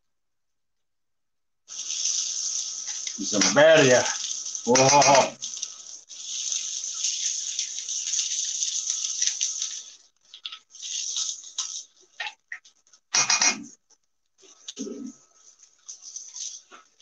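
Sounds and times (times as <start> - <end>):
tacos sizzling on a griddle: 1.7 - 11.9.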